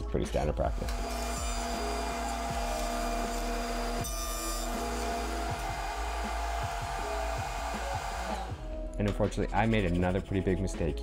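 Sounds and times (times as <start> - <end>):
table saw running and cutting: 0.7 - 8.7.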